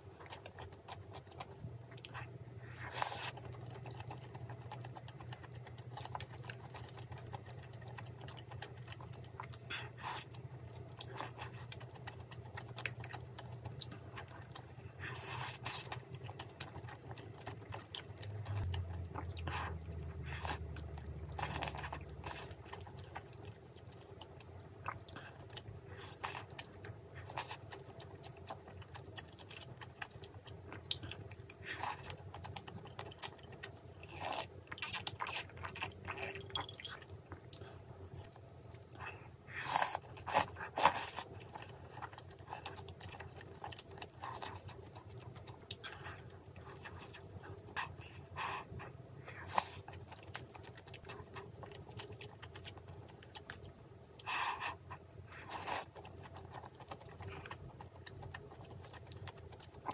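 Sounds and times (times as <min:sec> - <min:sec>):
chewing and biting food: 0:00.0 - 0:59.9.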